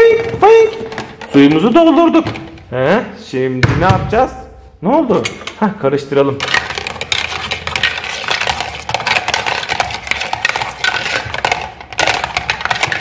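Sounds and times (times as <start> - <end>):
stirring in a plastic pot: 5.1 - 13.0.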